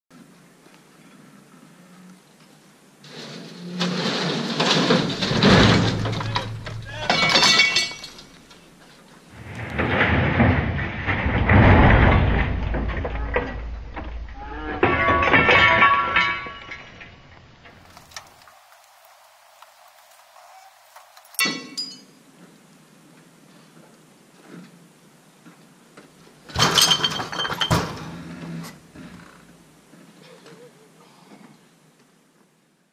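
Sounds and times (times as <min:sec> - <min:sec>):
metal grinding and scraping: 0:03.0 - 0:08.7, 0:09.3 - 0:18.5
metallic rattling: 0:03.1 - 0:08.6
heavy metal machine crashing: 0:03.2 - 0:08.3, 0:09.4 - 0:17.0.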